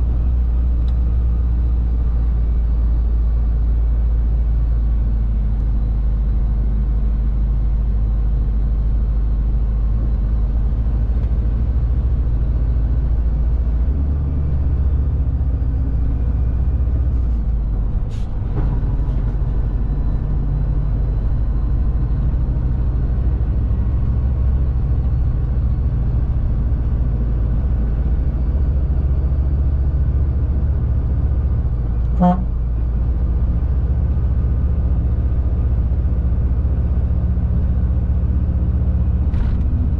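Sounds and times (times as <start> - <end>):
road noise: 0.0 - 39.9
truck engine drone: 0.0 - 39.9
truck horn toot: 32.1 - 32.6.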